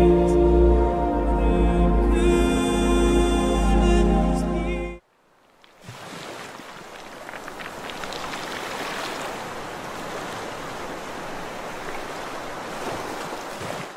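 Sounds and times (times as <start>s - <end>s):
rushing water with crackle: 5.1s - 13.9s.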